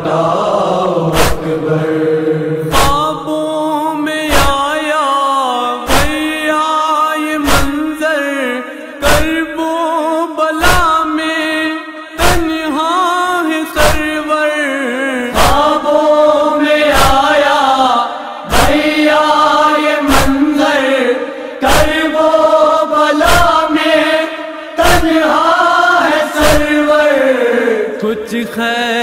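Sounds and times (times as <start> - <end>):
wordless mournful chanting voices: 0.0 - 29.0
heavy chest-beating thumps: 1.1 - 1.5, 5.9 - 6.2, 7.5 - 7.8, 18.5 - 19.0, 21.6 - 22.1.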